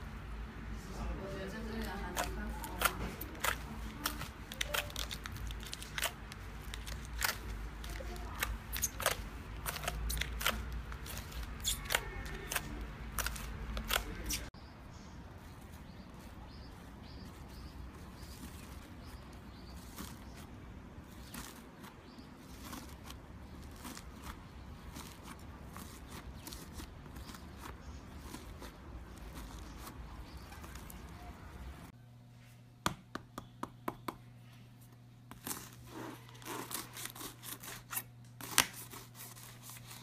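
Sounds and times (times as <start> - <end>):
slime squishing by hand: 1.6 - 14.6.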